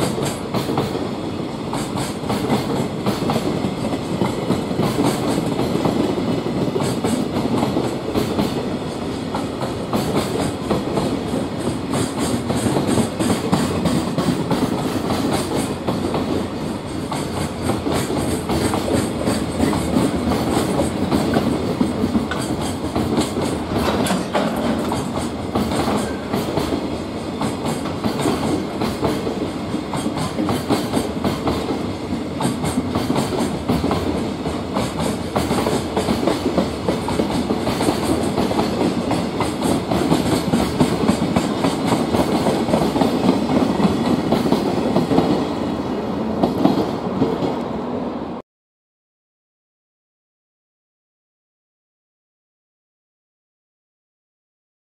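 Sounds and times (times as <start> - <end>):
train wheels rumbling on rail: 0.0 - 48.4
wheels clicking over rail joints: 16.9 - 31.8.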